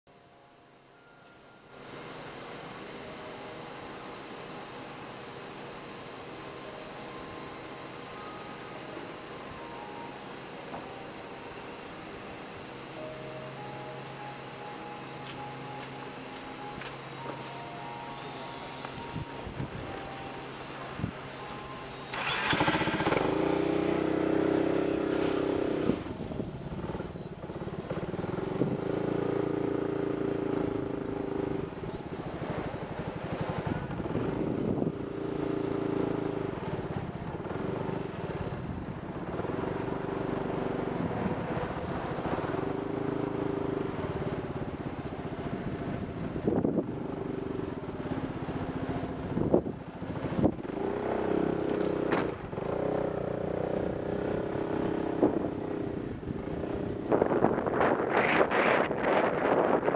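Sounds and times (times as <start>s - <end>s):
insect drone: 0.1s - 59.9s
motorcycle engine: 14.4s - 59.9s.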